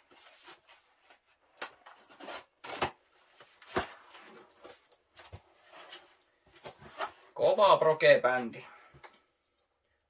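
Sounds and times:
cardboard rustling and scraping: 0:00.0 - 0:07.5.

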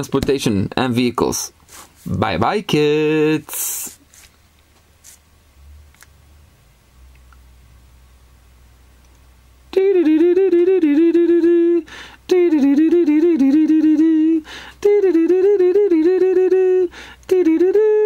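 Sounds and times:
person humming a tune: 0:09.7 - 0:18.0
breaths: 0:11.8 - 0:12.2, 0:14.4 - 0:14.8, 0:16.9 - 0:17.3.

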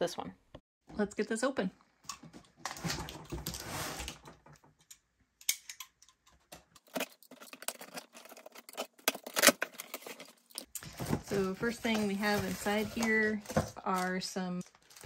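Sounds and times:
knife cutting packing tape: 0:07.0 - 0:10.3
cardboard box handled: 0:07.6 - 0:13.8.

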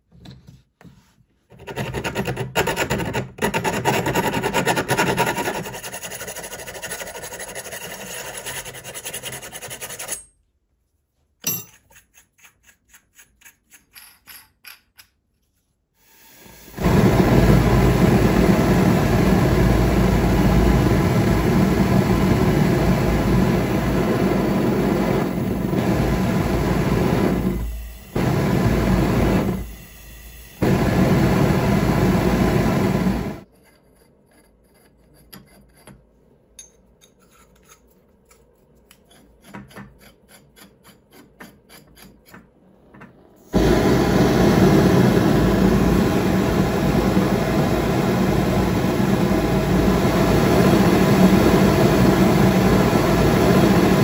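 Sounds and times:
propane burner jet rushing: 0:16.5 - 0:33.4, 0:43.5 - 0:54.0.

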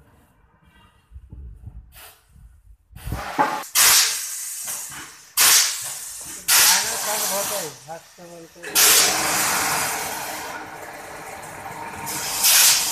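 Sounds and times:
mould venting pressure hiss: 0:01.9 - 0:10.5, 0:12.1 - 0:12.9.

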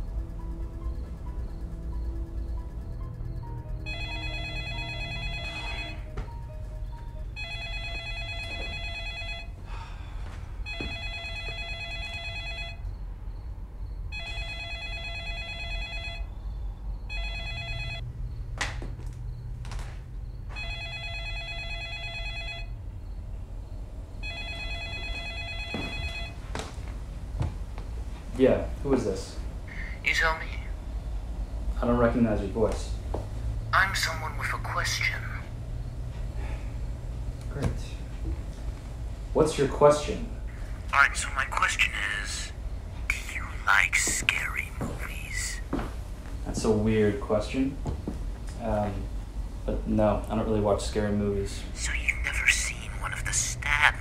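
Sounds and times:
background music drone: 0:00.0 - 0:09.2
phone ringtone: 0:00.0 - 0:09.7, 0:10.6 - 0:13.0, 0:14.1 - 0:16.4, 0:17.1 - 0:18.1, 0:20.5 - 0:22.9, 0:24.2 - 0:26.4.

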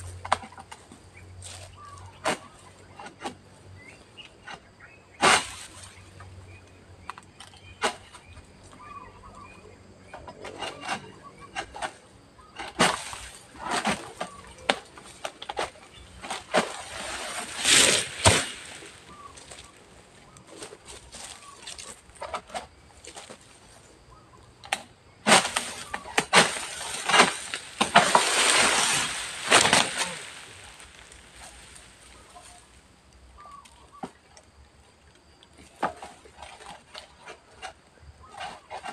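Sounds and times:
palm fronds rustling and crashing: 0:05.2 - 0:06.0, 0:12.6 - 0:23.5, 0:25.2 - 0:32.9.

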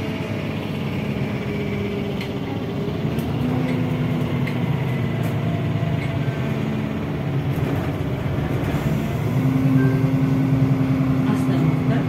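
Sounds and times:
bus drivetrain hum: 0:00.0 - 0:12.0
road noise: 0:00.0 - 0:12.0.

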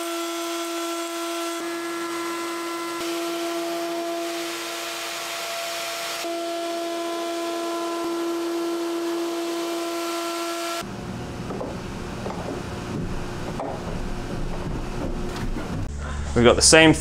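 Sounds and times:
router cutting wood hiss: 0:00.0 - 0:10.8
electric router whining: 0:00.0 - 0:12.6.

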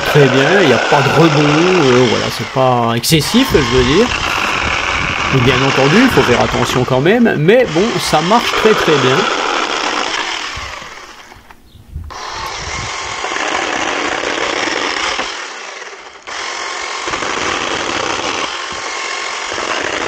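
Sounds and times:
chainsaw cutting boards: 0:00.0 - 0:20.0.

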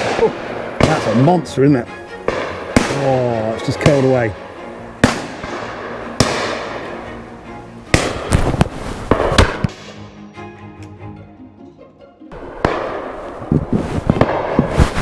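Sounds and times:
shotgun shots: 0:00.0 - 0:01.4, 0:02.3 - 0:04.2, 0:05.0 - 0:06.8, 0:07.9 - 0:08.5, 0:09.1 - 0:10.0, 0:12.6 - 0:13.2.

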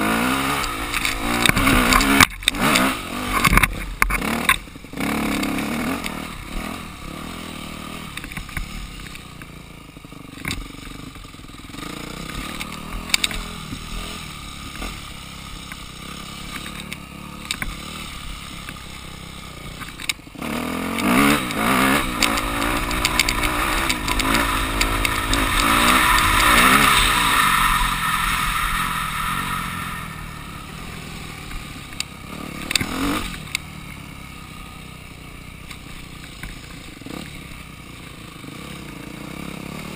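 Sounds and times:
dirt bike engine: 0:00.0 - 0:39.9.

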